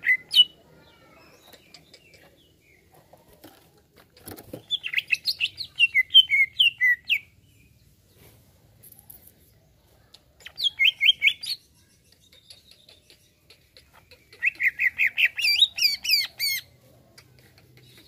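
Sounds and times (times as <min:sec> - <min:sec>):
bird singing chirps and whistles: 0:04.7 - 0:07.3, 0:10.6 - 0:12.8.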